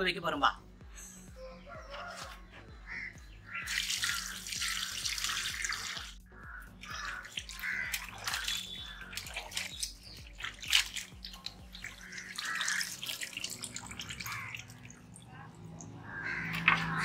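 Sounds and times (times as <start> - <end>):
hands splashing in water: 3.6 - 6.2, 6.8 - 17.0
water pouring into bowl: 3.6 - 6.2, 6.8 - 17.0.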